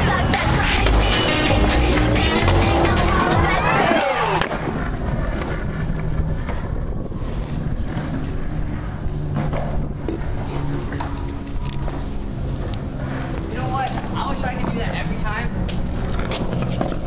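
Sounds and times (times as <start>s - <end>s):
skateboard wheels rolling on concrete: 0.0s - 17.0s
wind rumbling on microphone: 3.6s - 17.0s.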